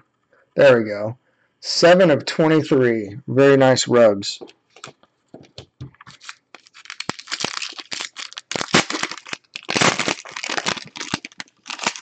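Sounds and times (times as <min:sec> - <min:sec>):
foil wrapper crinkling and tearing: 0:06.1 - 0:12.0.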